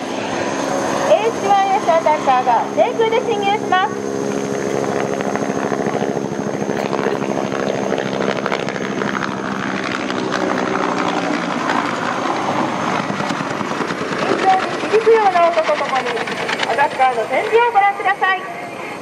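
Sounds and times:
helicopter rotor beating: 0.0s - 19.0s
helicopter turbine running: 0.0s - 19.0s.

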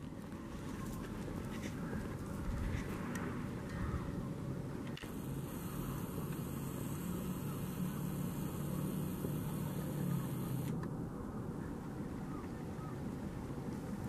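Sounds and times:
outdoor background noise: 0.0s - 14.0s
zoom motor whirring: 5.0s - 10.8s.

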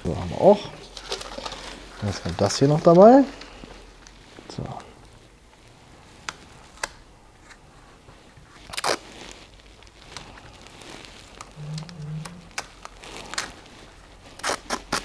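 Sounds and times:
paper clicks and crinkles: 0.0s - 15.0s.

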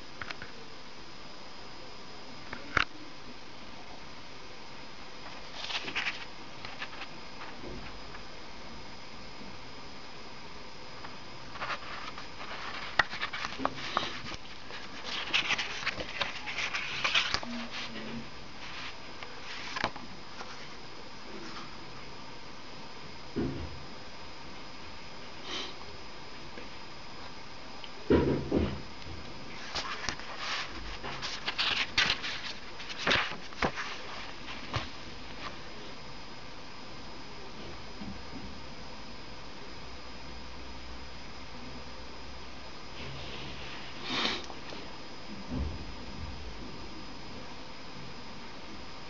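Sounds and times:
paper pages rustling: 5.3s - 7.6s, 11.5s - 20.6s, 29.6s - 35.6s.

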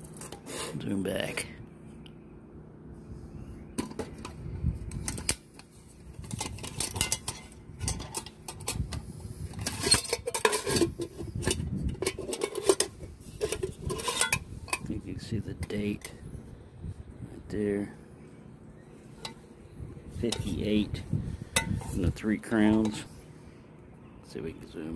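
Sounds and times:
metal pots clattering on glass: 9.7s - 14.8s.

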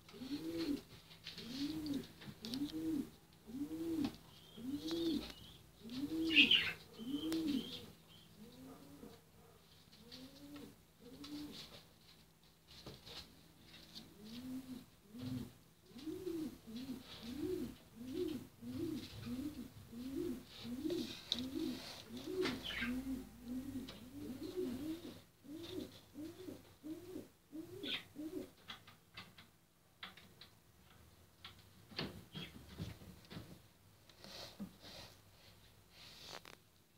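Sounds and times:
pigeons cooing: 0.0s - 11.8s, 13.9s - 28.6s.

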